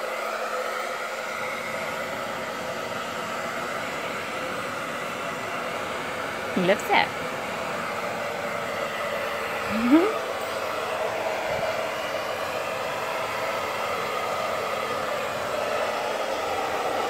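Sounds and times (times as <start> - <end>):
hair dryer blowing: 0.0 - 17.0
short rising voice-like sound: 9.7 - 10.2.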